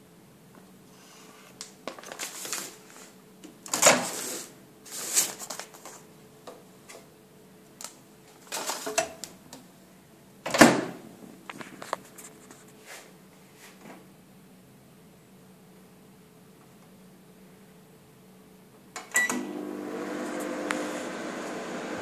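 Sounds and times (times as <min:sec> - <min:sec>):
paper bag rustling and crinkling: 0:01.8 - 0:03.2, 0:03.9 - 0:06.0.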